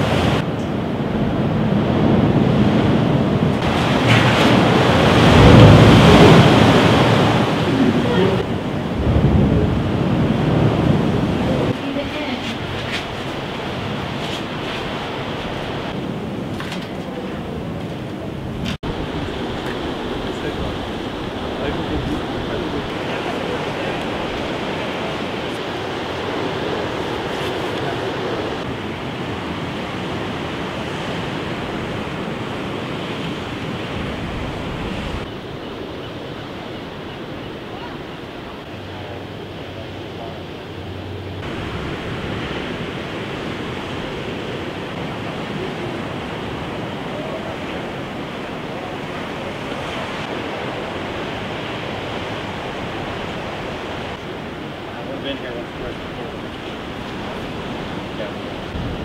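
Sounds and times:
ocean surf: 0.0 - 59.0
wind on microphone: 0.0 - 59.0.

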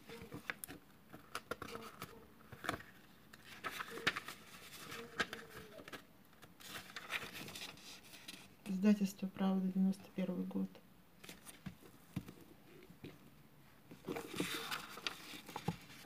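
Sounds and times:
book pages turning: 0.0 - 8.6, 11.2 - 13.2, 13.9 - 16.0
paper rustling with taps: 13.9 - 16.0.

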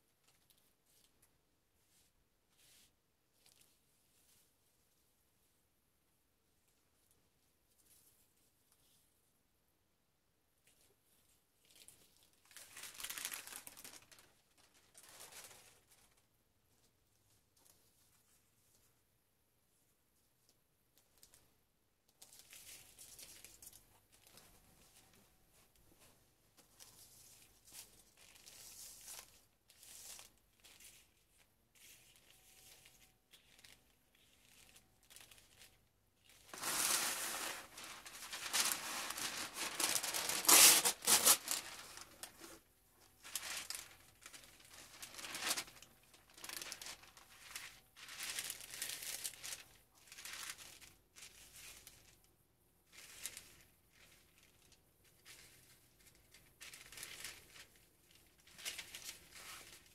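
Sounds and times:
paper and leaves rustling: 11.6 - 16.2, 26.0 - 42.6, 43.2 - 52.2, 52.9 - 59.9
paper crinkling: 11.6 - 16.3, 22.2 - 52.2, 52.9 - 59.9.

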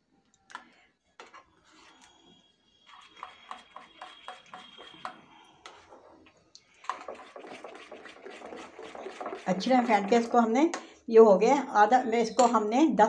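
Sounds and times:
metal spoon clinking glass bowl: 12.3 - 12.7.

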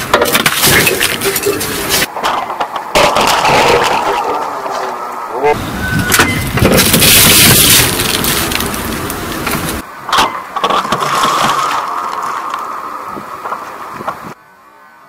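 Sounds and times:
tyre crushing juice cartons: 0.0 - 4.3, 10.6 - 12.5.

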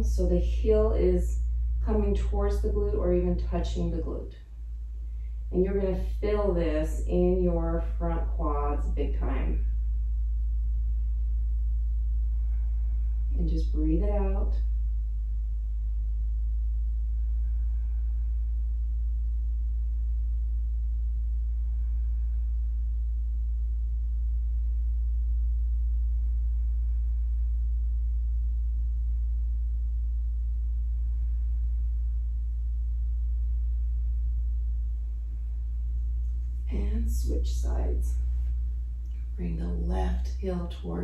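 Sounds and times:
steady low rumble: 0.0 - 41.0
person breathing slowly: 17.1 - 18.9, 21.4 - 23.0.

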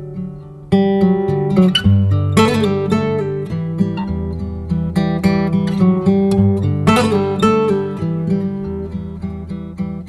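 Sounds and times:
strummed acoustic guitar music: 0.0 - 10.0.

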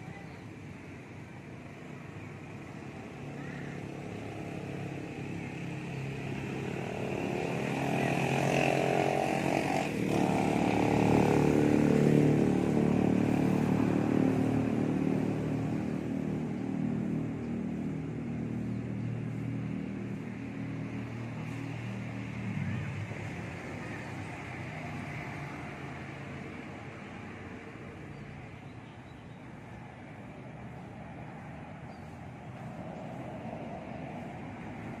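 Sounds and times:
motorcycle engine passing: 4.5 - 27.3.

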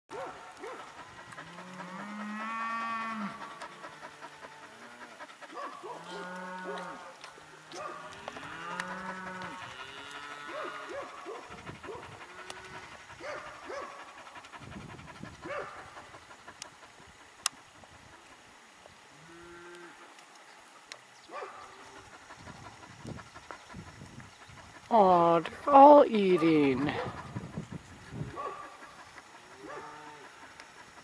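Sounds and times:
cattle mooing: 1.4 - 5.2, 5.8 - 11.2, 19.1 - 20.1, 29.6 - 30.5.

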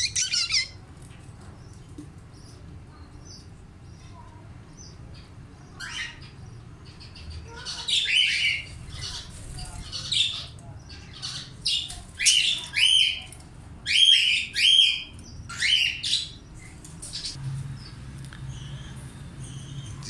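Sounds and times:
parrots squawking: 0.0 - 0.8, 5.8 - 13.3, 13.9 - 16.4.

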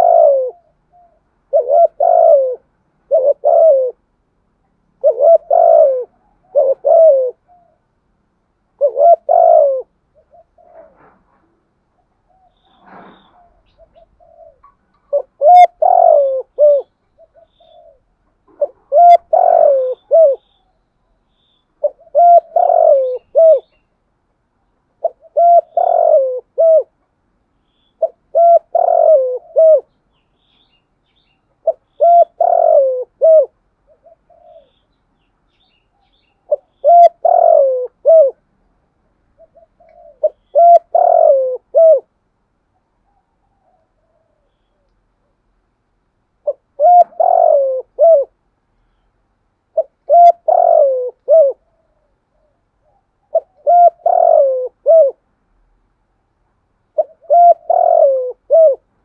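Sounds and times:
dove cooing: 0.0 - 4.1, 4.9 - 8.0, 8.7 - 20.8, 21.8 - 23.8, 25.0 - 27.0, 28.0 - 30.0, 31.6 - 34.9, 35.9 - 38.5, 39.3 - 42.1, 42.7 - 44.9, 46.4 - 48.4, 49.7 - 55.2, 56.9 - 59.0.

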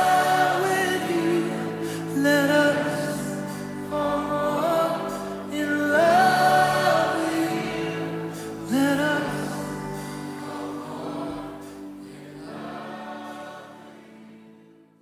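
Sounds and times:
band playing sustained chords: 0.0 - 13.8
voices singing: 0.0 - 14.7.

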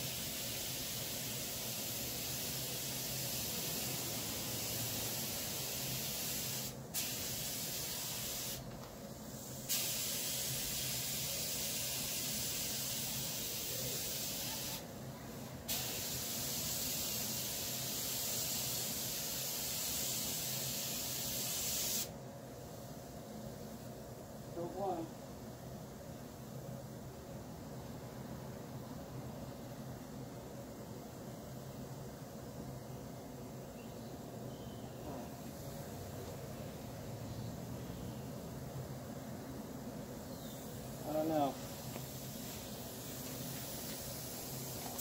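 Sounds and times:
spray gun hissing: 0.0 - 8.6, 9.2 - 14.8, 15.7 - 22.1, 40.5 - 45.0.

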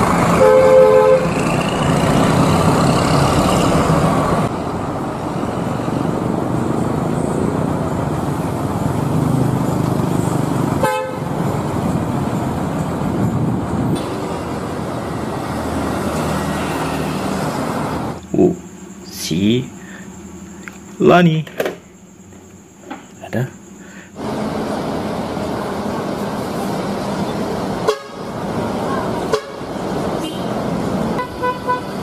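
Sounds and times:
bus diesel engines running: 0.0 - 21.3, 23.2 - 32.0
traffic noise: 0.0 - 32.0
bus horn: 0.3 - 2.0, 10.8 - 11.5, 27.8 - 32.0.

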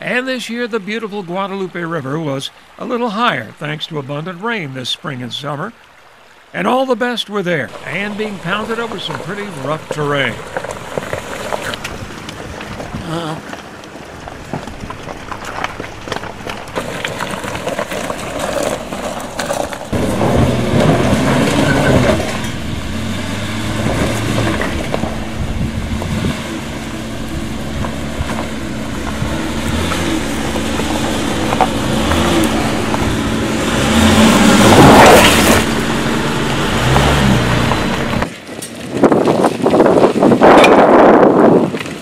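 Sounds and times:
tyres crunching over gravel: 7.6 - 42.0
car engine revving: 7.7 - 38.3.

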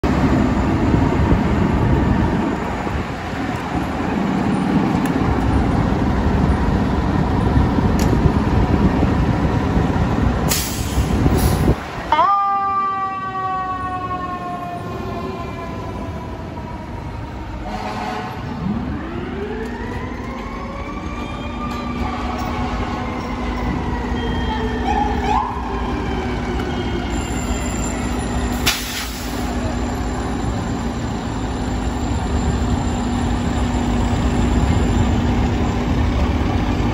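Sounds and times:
heavy truck engines running: 0.0 - 12.2, 13.8 - 36.9
air brake hisses: 10.5 - 11.7, 28.6 - 29.6.

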